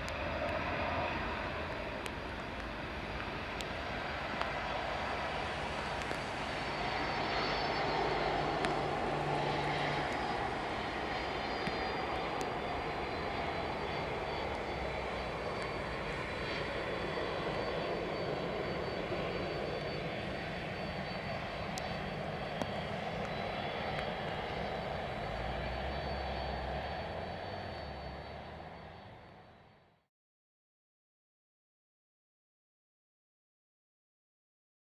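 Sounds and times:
jet engines taxiing: 0.0s - 30.0s.

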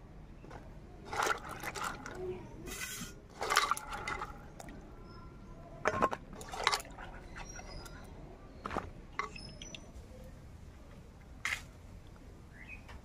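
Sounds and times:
water splashing and dripping: 1.1s - 2.3s, 3.3s - 4.9s, 6.0s - 8.1s.

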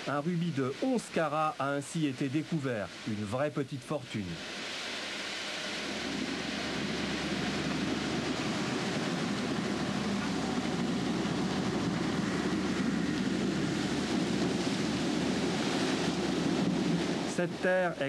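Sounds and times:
slurry pumps droning: 4.4s - 18.0s
low hum: 5.2s - 18.0s.

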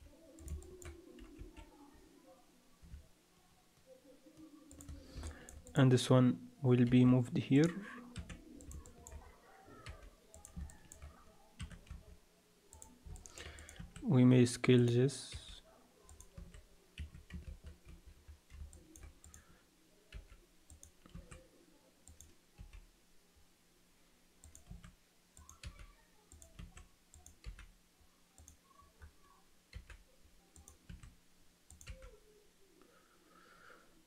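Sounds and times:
mouse and keyboard clicks: 12.7s - 14.0s, 24.4s - 27.7s.

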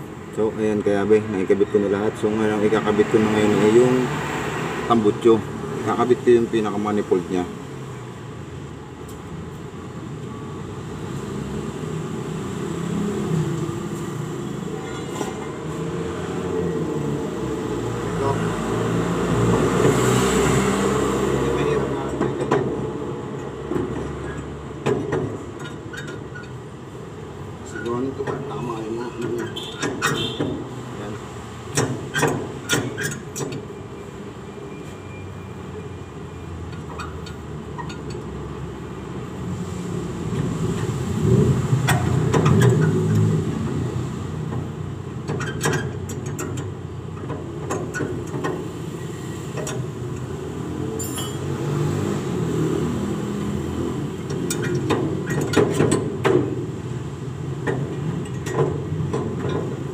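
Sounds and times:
metal clinks of hand tools: 51.0s - 51.5s.

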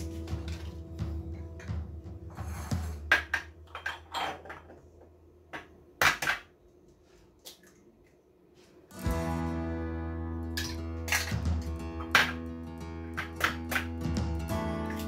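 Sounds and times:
background music: 0.0s - 3.5s, 8.9s - 15.0s
kitchenware clinking on stone countertop: 2.4s - 4.9s.

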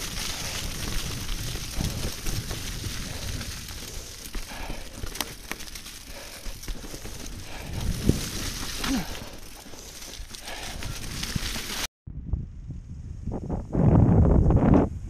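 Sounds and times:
sharp bike clicks: 0.0s - 11.8s
tyres rolling over wet leaves: 0.0s - 11.9s
low microphone rumble: 12.1s - 15.0s.

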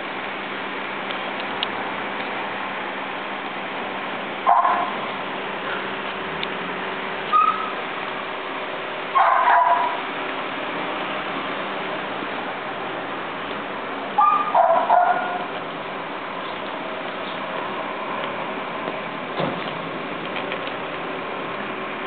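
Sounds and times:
dog barking: 4.5s - 5.0s, 9.2s - 10.0s, 14.2s - 15.5s.

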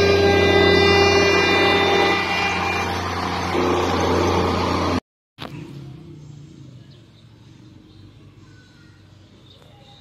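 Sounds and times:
diesel train passing: 0.0s - 5.0s
faint low engine hum: 0.8s - 10.0s.

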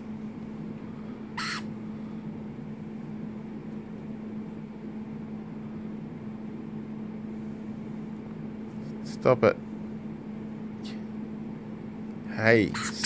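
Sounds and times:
steady low hum: 0.0s - 13.0s
lorikeet screech: 1.4s - 1.7s, 12.7s - 13.0s.

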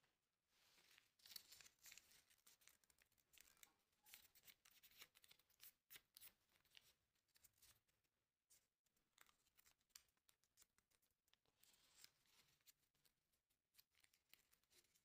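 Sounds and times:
paper crinkling and rustling: 0.6s - 7.8s.

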